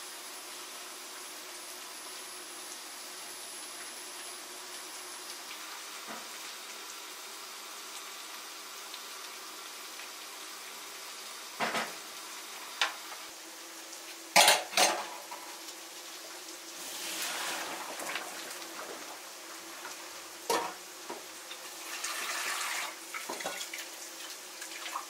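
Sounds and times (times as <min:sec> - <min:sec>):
rice boiling in a pot: 0:00.0 - 0:25.0
clatters of utensils and cookware: 0:11.6 - 0:12.0, 0:14.4 - 0:15.5, 0:19.8 - 0:21.2, 0:23.2 - 0:23.8
water pouring into metal colander: 0:16.8 - 0:19.2, 0:21.7 - 0:25.0.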